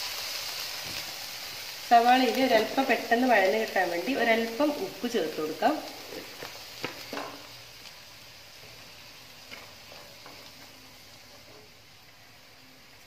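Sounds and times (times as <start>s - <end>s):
onions sizzling in oil: 0.0s - 13.0s
spatula knocking pan: 6.8s - 7.5s.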